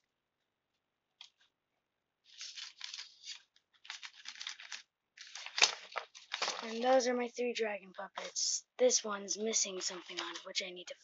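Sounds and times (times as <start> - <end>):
stiff paper rustling and crinkling: 2.3 - 7.1, 9.6 - 10.7.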